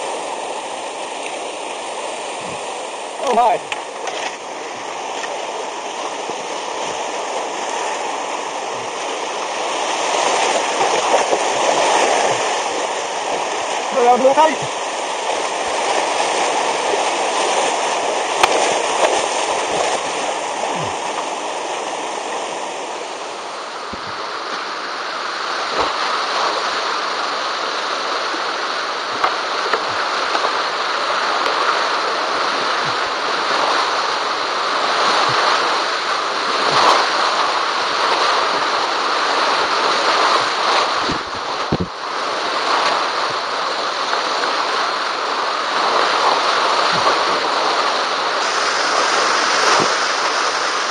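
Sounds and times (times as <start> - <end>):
whitewater rapids rushing: 0.0 - 50.9.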